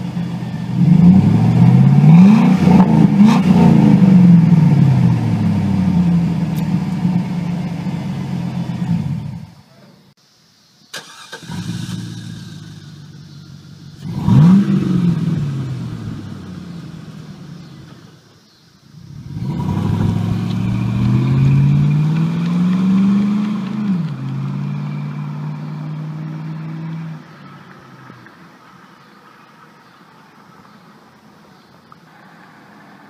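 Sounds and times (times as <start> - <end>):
truck accelerating away: 0.0 - 9.5, 11.0 - 18.2, 19.0 - 28.4
truck engine revving: 0.0 - 9.5, 11.0 - 18.1, 19.0 - 28.2.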